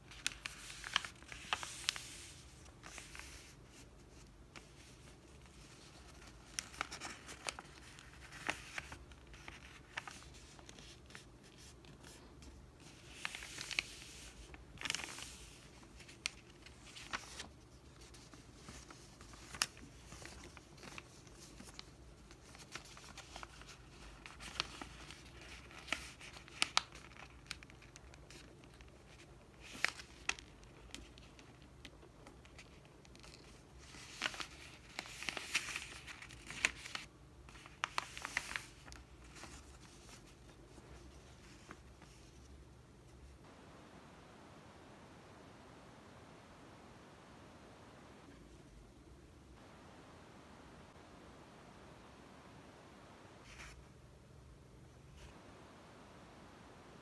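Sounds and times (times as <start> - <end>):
paper rustling and crinkling: 0.0 - 43.3.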